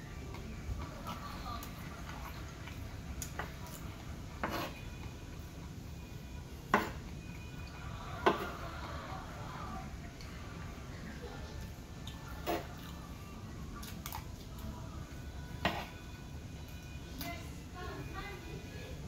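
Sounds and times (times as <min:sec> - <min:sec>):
metal spoon scraping wooden board: 0:04.4 - 0:04.8.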